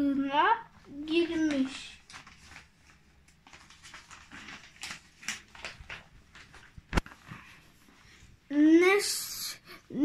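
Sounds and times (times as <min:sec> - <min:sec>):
paper pages rustling: 0:00.8 - 0:08.3.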